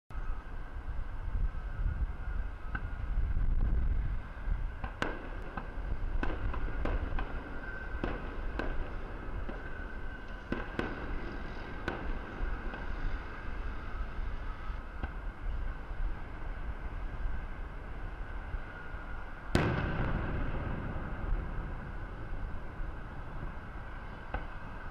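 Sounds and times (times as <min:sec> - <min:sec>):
low rumble: 0:19.5 - 0:24.9.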